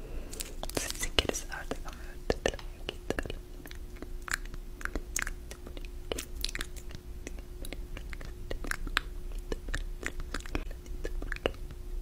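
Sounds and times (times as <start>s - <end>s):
faint steady hum: 0.0s - 12.0s
crisp clicks and crackles: 0.3s - 9.5s.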